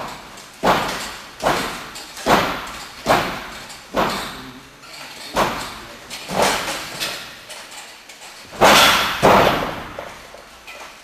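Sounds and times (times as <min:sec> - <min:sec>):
sharp thuds in ring: 0:00.0 - 0:04.5, 0:05.3 - 0:07.3, 0:08.5 - 0:10.3.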